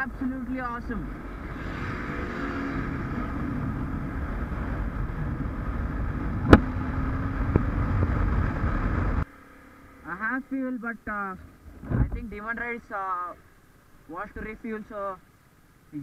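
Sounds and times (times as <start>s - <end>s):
motorcycle engine running: 0.0s - 12.3s
wind noise on microphone: 1.1s - 9.2s, 11.6s - 12.4s.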